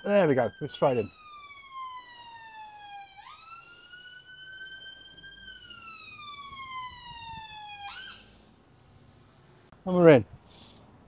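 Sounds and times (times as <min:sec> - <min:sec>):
emergency vehicle siren wailing: 0:00.0 - 0:08.5.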